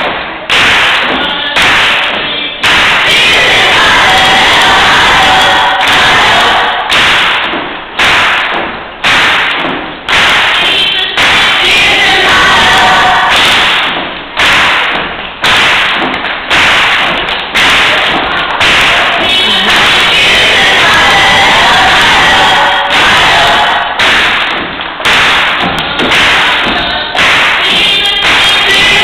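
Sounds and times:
heavy thumping beat: 0.0 - 29.0
gospel choir singing: 0.8 - 7.4, 10.4 - 14.0, 16.7 - 29.0.

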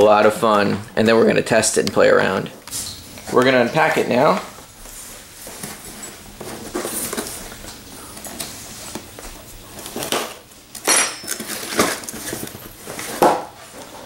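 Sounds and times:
cardboard rustling: 3.2 - 10.5, 11.2 - 14.0.

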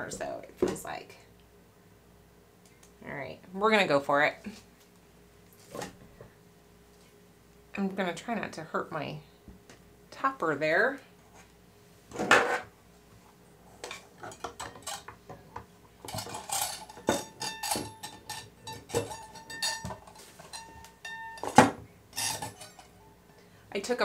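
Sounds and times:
faint metallic ringing: 16.2 - 23.6.

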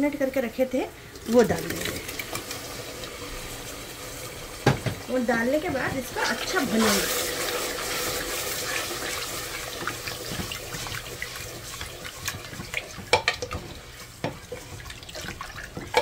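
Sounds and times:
meat sizzling in hot oil: 1.3 - 16.0
wooden spoon knocking against pot: 12.6 - 16.0.

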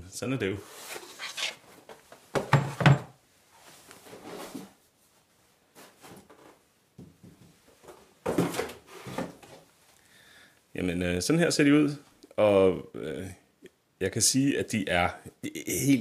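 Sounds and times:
cardboard box rustling and scraping: 0.7 - 1.8.

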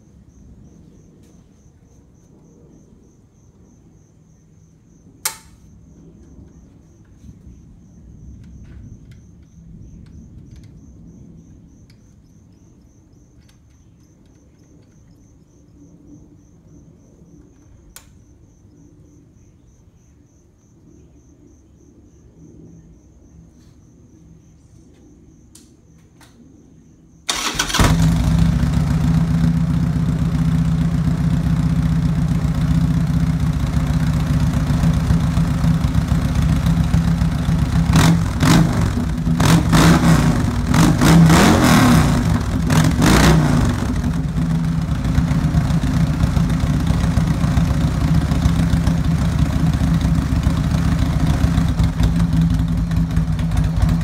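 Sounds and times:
motorcycle engine starting and idling: 27.3 - 54.0.

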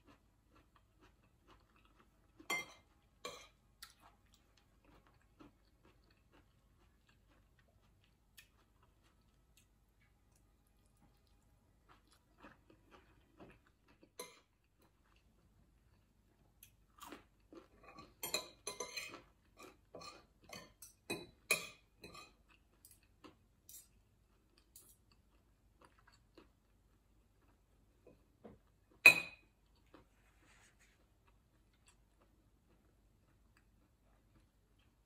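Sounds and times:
person chewing: 0.0 - 29.0, 29.6 - 35.0
cutlery clinking on dishes: 2.4 - 3.6, 17.9 - 23.0, 23.7 - 24.0, 29.0 - 29.5.

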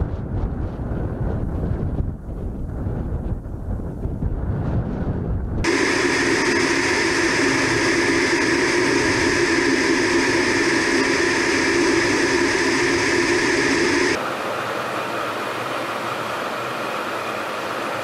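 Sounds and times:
aircraft engines droning: 5.6 - 18.0.

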